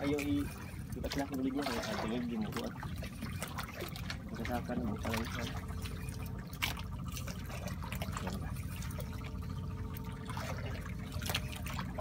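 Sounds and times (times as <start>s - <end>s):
steady low rumble: 0.0s - 12.0s
water lapping against boat hull: 0.0s - 12.0s
splashes or knocks: 10.2s - 12.0s.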